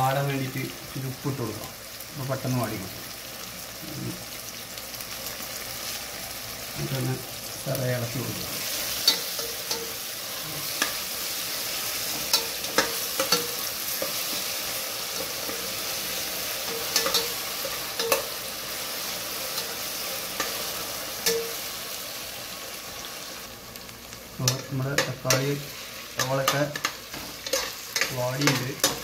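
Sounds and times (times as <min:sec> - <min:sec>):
vegetables sizzling in oil: 0:00.0 - 0:29.0
metal spoon clinking on a pot: 0:09.0 - 0:10.0, 0:12.2 - 0:14.2, 0:16.7 - 0:18.3, 0:21.2 - 0:21.6, 0:26.2 - 0:29.0.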